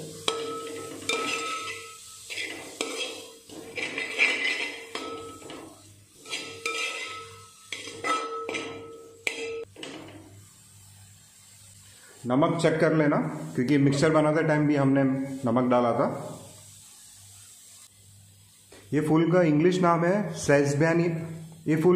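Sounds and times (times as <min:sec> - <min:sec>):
metal spoon scraping a pot: 0:00.2 - 0:10.2
pot ringing faintly: 0:04.9 - 0:09.7.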